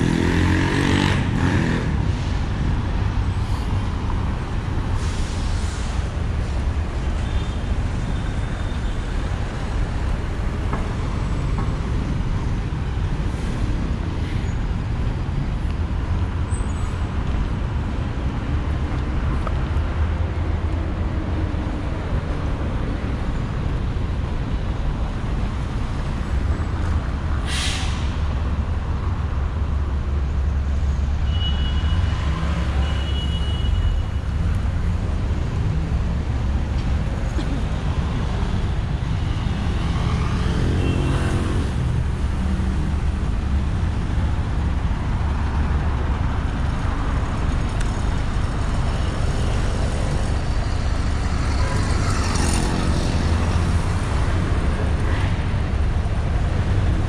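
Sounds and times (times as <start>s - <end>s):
rumble of passing traffic: 0.0s - 57.0s
bus air brake hiss: 4.9s - 6.6s, 27.4s - 28.2s.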